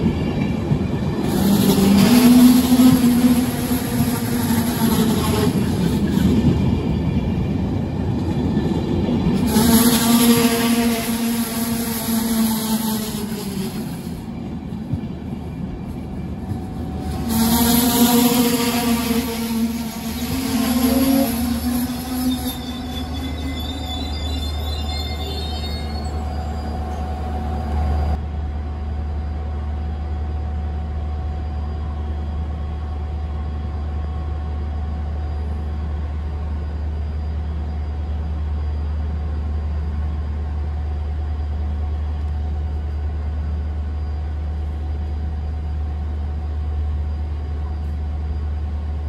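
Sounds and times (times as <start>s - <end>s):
faint high squeals: 19.5s - 28.1s.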